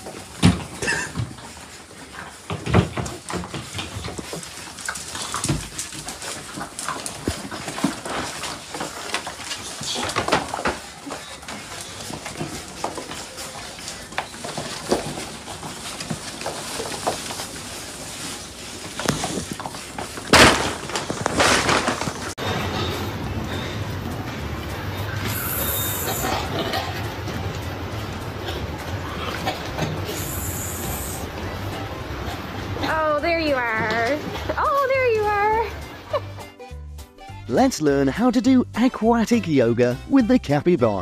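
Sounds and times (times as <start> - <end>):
puppies yelping and whining: 24.9 - 27.0.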